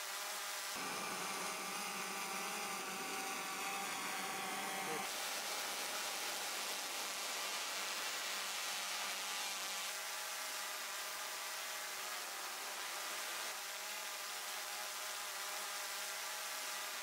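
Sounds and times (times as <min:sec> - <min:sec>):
drone buzzing: 0:00.8 - 0:05.1.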